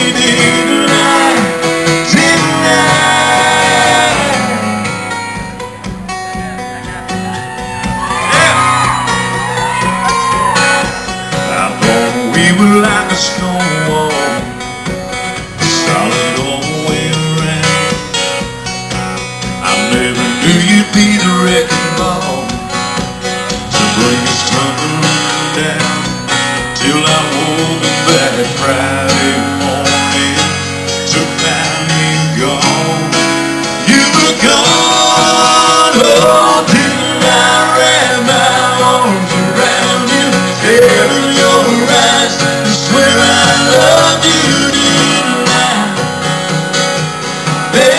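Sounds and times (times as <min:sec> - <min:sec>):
man singing into microphone: 0:00.0 - 0:05.2, 0:11.3 - 0:14.7, 0:15.6 - 0:18.2, 0:19.6 - 0:22.8, 0:23.6 - 0:46.4, 0:47.6 - 0:47.9
acoustic guitars strummed: 0:00.0 - 0:47.9.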